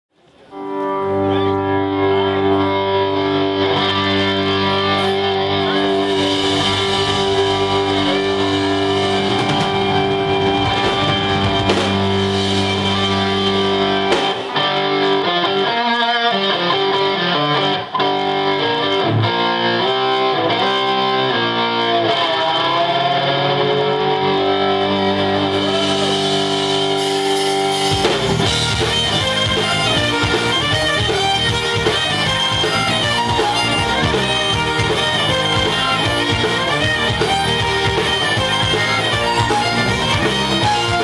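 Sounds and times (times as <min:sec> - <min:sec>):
distorted electric guitars: 0:00.5 - 0:41.0
bagpipes: 0:00.6 - 0:14.3, 0:24.8 - 0:41.0
fiddle: 0:28.0 - 0:41.0.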